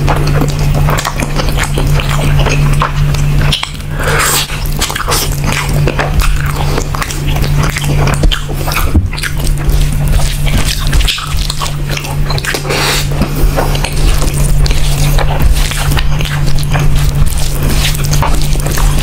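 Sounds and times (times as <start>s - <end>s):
loud wet chewing: 0.0s - 19.0s
low steady hum: 0.0s - 19.0s
teeth tearing meat: 0.0s - 19.0s.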